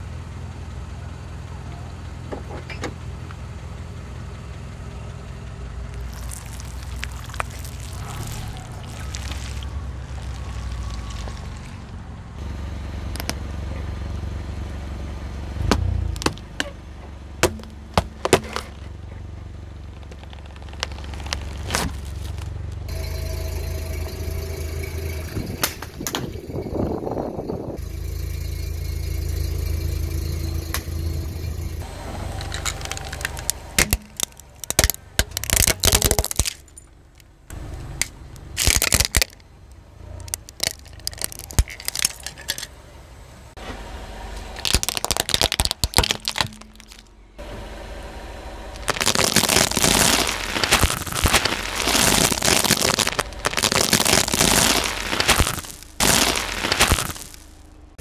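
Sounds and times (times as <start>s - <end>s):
car engine idling: 0.0s - 58.0s
tyre crushing crunchy objects: 6.0s - 12.0s, 15.6s - 16.7s, 17.4s - 18.9s, 19.9s - 23.0s, 32.5s - 36.8s, 38.5s - 39.4s, 40.2s - 42.6s, 44.6s - 47.1s, 48.7s - 57.7s.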